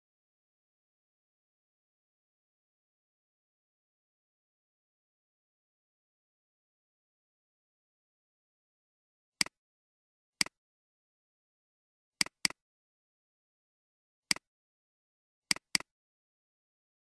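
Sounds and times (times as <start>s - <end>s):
computer mouse clicks: 12.2s - 12.6s, 15.5s - 15.9s.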